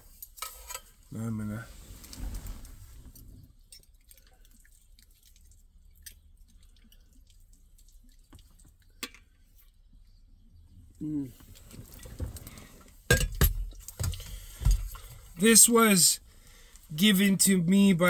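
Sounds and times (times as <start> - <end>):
water trickling and dripping: 3.6 - 9.8.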